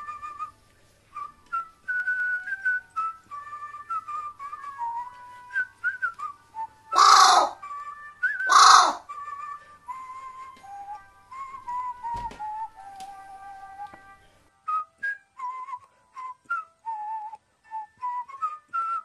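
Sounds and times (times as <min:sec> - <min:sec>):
whistled tune: 0:00.0 - 0:19.0
crow cawing: 0:07.0 - 0:07.6, 0:08.5 - 0:09.0.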